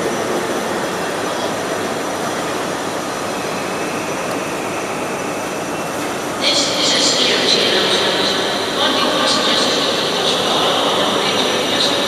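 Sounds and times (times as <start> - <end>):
faint high whine: 0.0 - 8.8
rumble of trains and machinery: 0.0 - 12.0.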